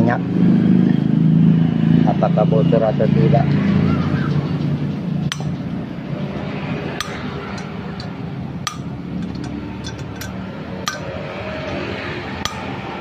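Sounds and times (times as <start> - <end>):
metallic valve clicks: 5.3 - 5.6, 7.0 - 11.1, 12.4 - 12.7.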